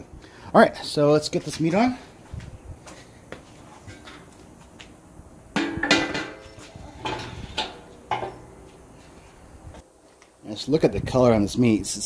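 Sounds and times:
metal lid and grate clanking: 0:05.6 - 0:08.6.

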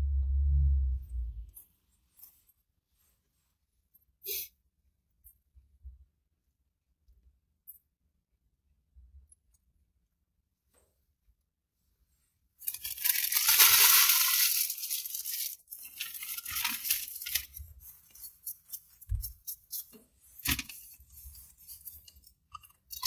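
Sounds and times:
paper packaging crinkling: 0:12.6 - 0:22.2.

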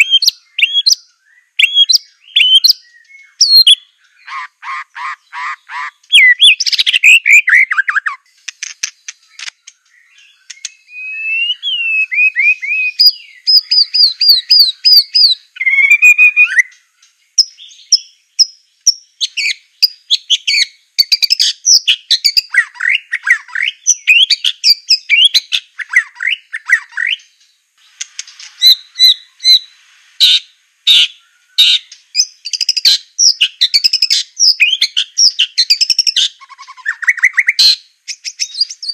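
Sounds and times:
bird singing whistled song: 0:00.0 - 0:38.9
sharp clicking bird notes: 0:08.4 - 0:10.8, 0:26.6 - 0:28.6.

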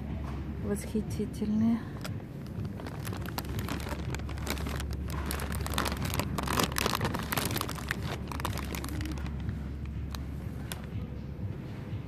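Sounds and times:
steady low hum: 0:00.0 - 0:12.0
plastic sleeve crinkling: 0:02.0 - 0:10.9.

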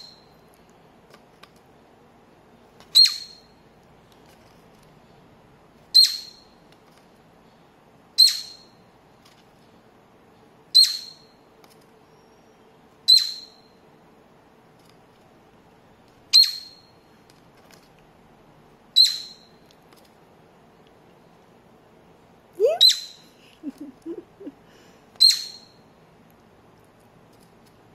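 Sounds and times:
cockatiel chirping: 0:02.9 - 0:03.5, 0:05.9 - 0:06.5, 0:08.2 - 0:08.7, 0:10.8 - 0:11.3, 0:13.1 - 0:13.6, 0:16.3 - 0:16.9, 0:19.0 - 0:19.6, 0:22.7 - 0:23.8, 0:25.2 - 0:25.8.

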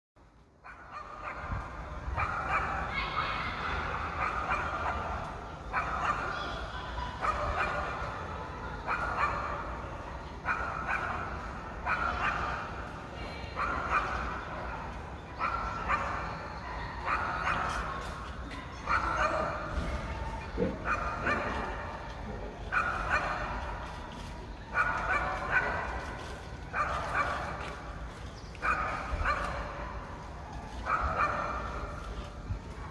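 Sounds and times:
dog barking: 0:00.6 - 0:02.9, 0:04.0 - 0:08.1, 0:08.8 - 0:09.8, 0:10.4 - 0:12.7, 0:13.6 - 0:14.8, 0:15.4 - 0:19.8, 0:20.8 - 0:22.0, 0:22.7 - 0:27.8, 0:28.6 - 0:32.3.

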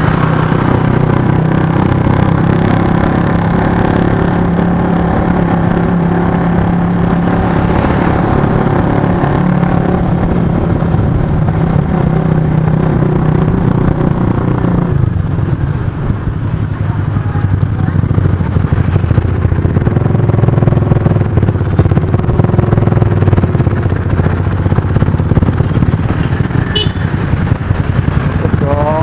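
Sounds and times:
wind and road noise: 0:00.0 - 0:29.0
scooter engine running: 0:11.8 - 0:29.0.

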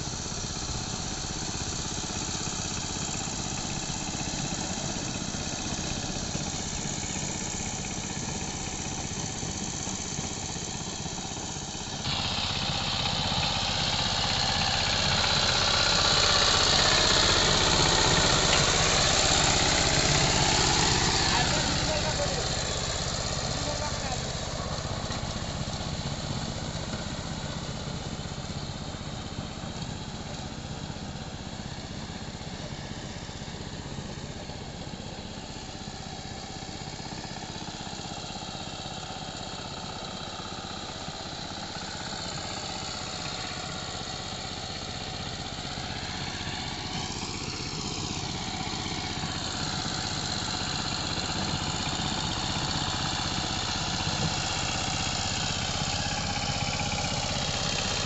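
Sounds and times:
diesel engine running under load: 0:00.0 - 0:58.0.

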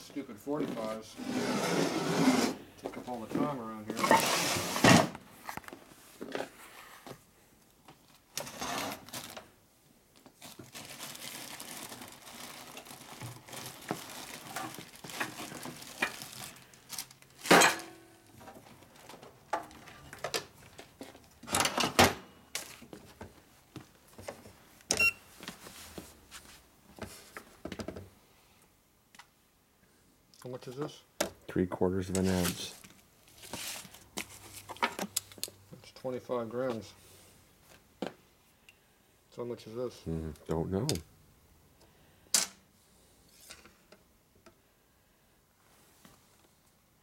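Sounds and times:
rummaging and rustling: 0:07.9 - 0:09.6, 0:10.2 - 0:17.7, 0:22.6 - 0:24.7, 0:32.2 - 0:35.4
objects clattering and knocking: 0:12.8 - 0:23.4.

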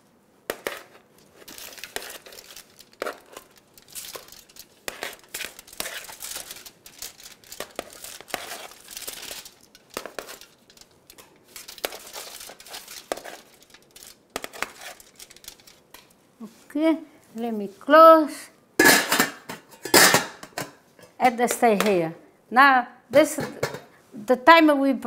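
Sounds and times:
metal tongs scraping foil: 0:00.5 - 0:16.2
aluminium foil crinkling: 0:00.7 - 0:16.2.

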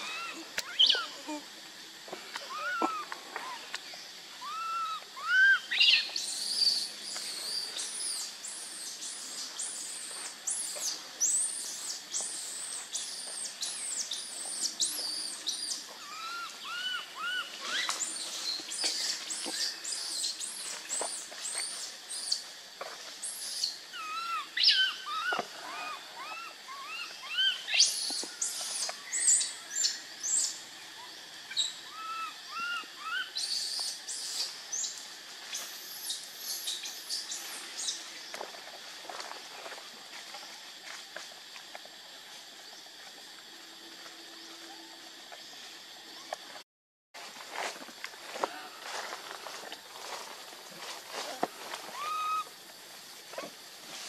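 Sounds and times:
baby monkey crying: 0:00.0 - 0:01.4, 0:02.5 - 0:03.6, 0:04.4 - 0:05.7, 0:16.0 - 0:17.9, 0:24.0 - 0:27.6, 0:31.9 - 0:33.3, 0:51.9 - 0:52.5.

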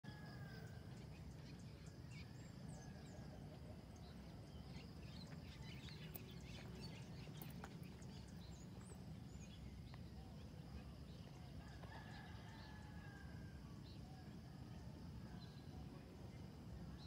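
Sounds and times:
steady low rumble: 0:00.7 - 0:11.6.

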